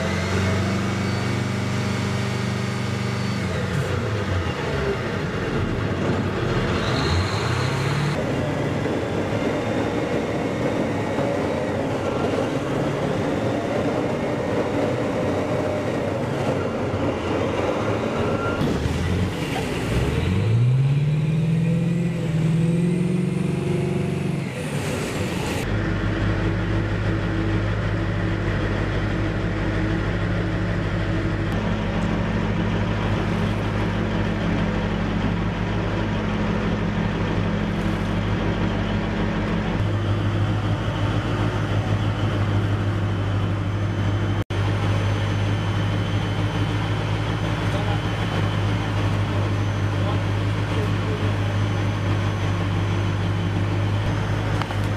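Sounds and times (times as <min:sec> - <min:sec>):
vehicle engine revving: 0:18.6 - 0:25.7.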